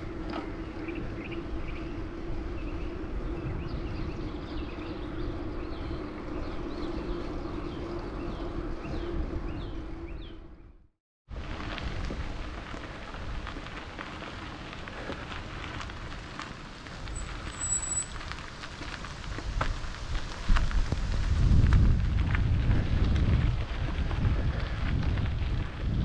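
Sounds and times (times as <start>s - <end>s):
wind buffeting microphone: 0.0s - 10.7s, 11.4s - 26.0s
bike tyres crunching on gravel: 11.3s - 26.0s.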